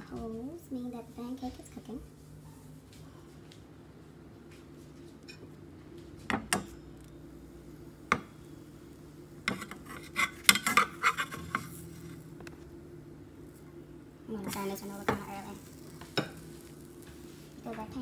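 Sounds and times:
steady low hum: 0.0 - 18.0
metal spatula scraping frying pan: 9.5 - 12.1.

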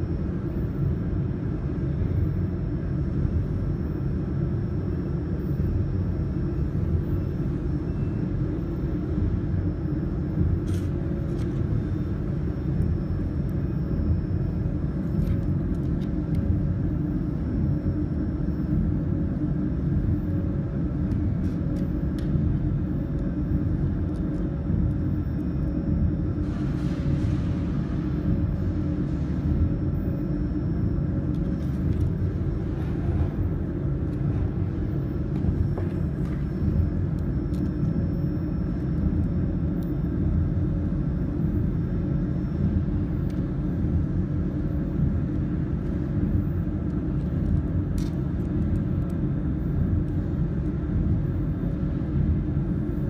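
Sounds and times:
machinery humming and rumbling: 0.0 - 53.0.

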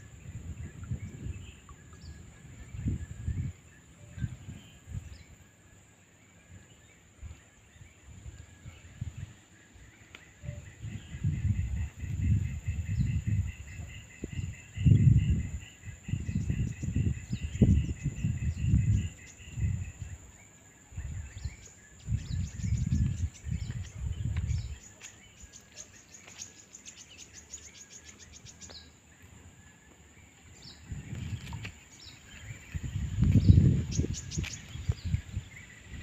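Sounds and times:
low rumbles on microphone: 10.4 - 20.2, 21.0 - 24.9, 30.6 - 36.0.

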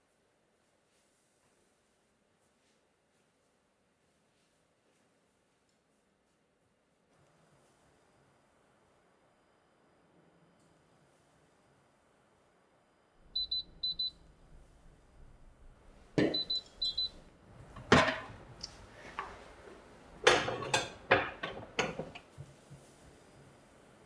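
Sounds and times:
oven timer beeping: 13.3 - 14.3, 16.2 - 17.3
casserole dish clunks and clattering: 17.7 - 18.4, 20.2 - 22.3.

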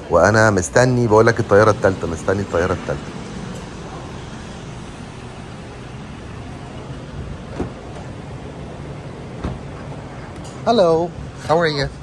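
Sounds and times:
car engine idling: 0.0 - 11.3.

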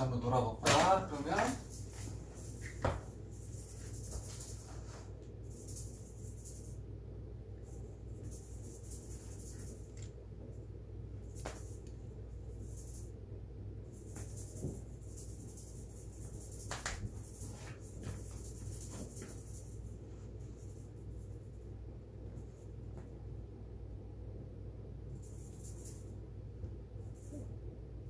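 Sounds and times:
low room hum: 0.0 - 28.0
soft scratches and rustles: 1.1 - 6.8, 13.9 - 23.2.

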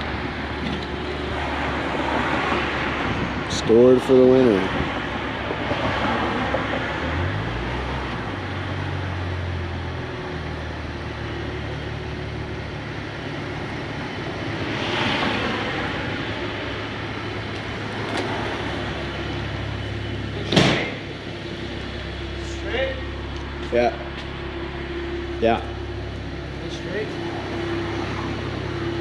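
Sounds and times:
car engine idling: 7.9 - 14.8, 15.4 - 29.0.

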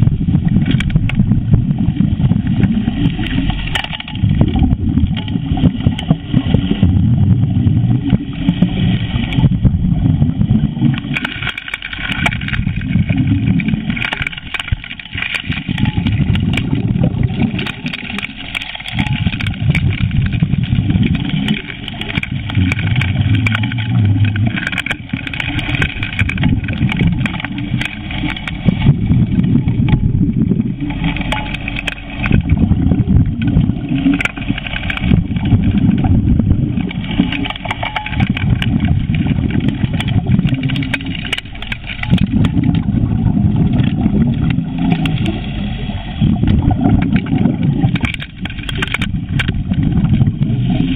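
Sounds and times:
underwater engine rumble: 0.0 - 50.9
faint clicks: 0.6 - 1.3, 10.8 - 43.0, 43.6 - 50.9.

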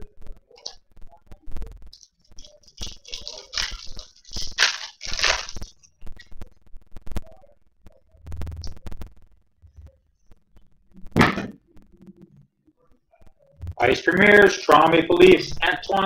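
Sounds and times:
trading cards rustling: 2.0 - 5.8.

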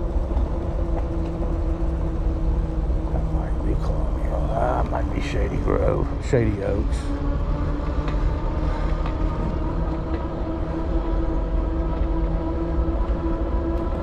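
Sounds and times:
electric bike motor whine: 0.0 - 14.0
tires and wind rumbling: 0.0 - 14.0.

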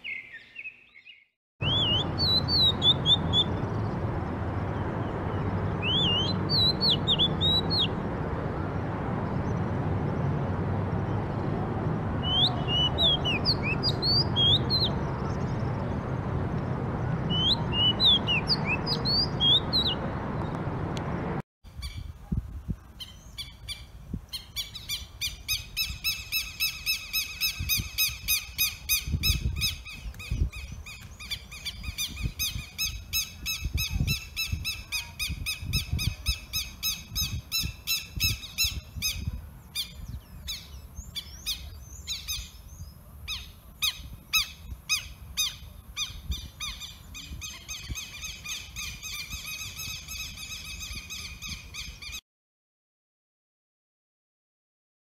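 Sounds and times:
bird calling repeated notes: 0.0 - 3.6, 5.8 - 8.0.

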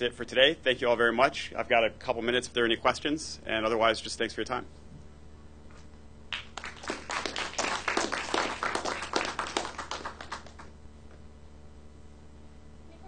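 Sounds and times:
audience applauding: 6.3 - 10.7.

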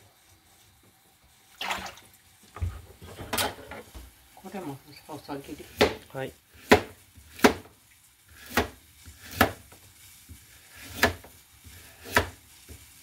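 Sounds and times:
knife chopping on cutting board: 5.6 - 12.8.

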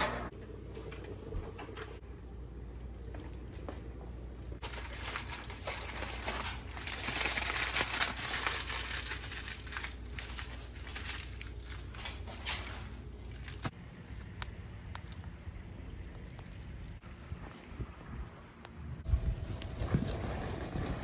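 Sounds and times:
aluminium foil crinkling: 4.6 - 17.0.

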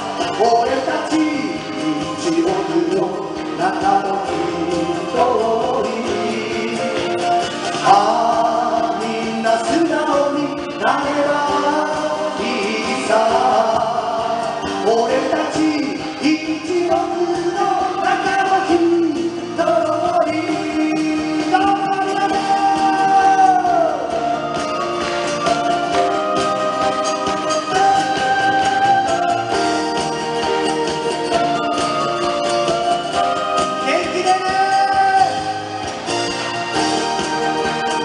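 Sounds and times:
man singing a ballad: 0.0 - 24.8, 31.3 - 35.8.

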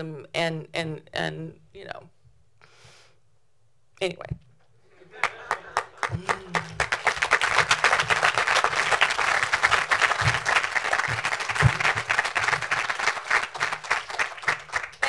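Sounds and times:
audience applauding: 5.0 - 15.0.

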